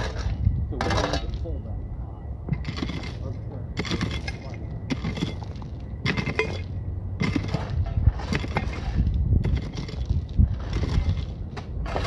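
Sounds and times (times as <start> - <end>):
hand tools scraping crushed stone: 2.5 - 12.0
stones clinking: 3.8 - 11.3.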